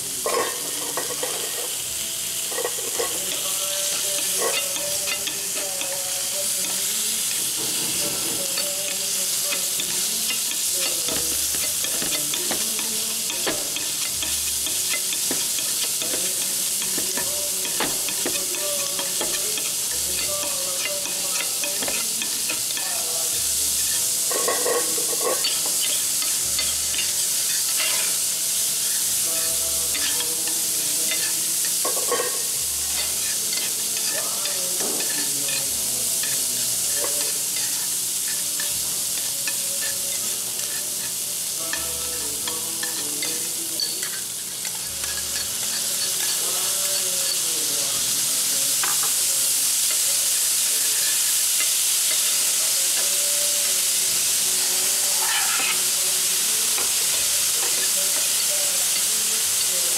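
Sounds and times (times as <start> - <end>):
rice sizzling on a griddle: 0.0 - 59.9
metal spatulas scraping and tapping: 9.5 - 22.8, 55.2 - 55.8.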